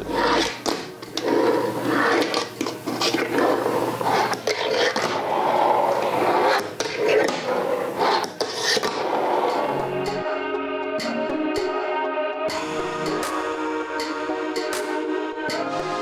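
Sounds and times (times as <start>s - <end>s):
fingerboard scraping on wood: 0.0s - 9.7s
fingerboard wheels rolling on wood: 0.0s - 9.7s.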